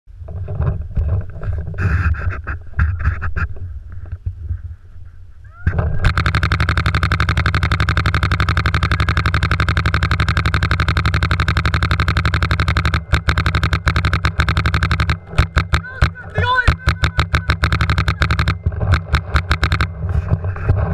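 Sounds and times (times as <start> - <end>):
paintball marker rapid firing: 5.8 - 20.6.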